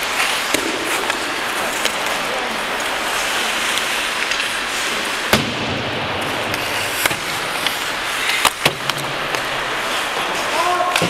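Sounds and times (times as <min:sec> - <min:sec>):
skates scraping ice: 0:00.0 - 0:11.0
puck and sticks knocking: 0:00.1 - 0:02.2, 0:05.2 - 0:09.6.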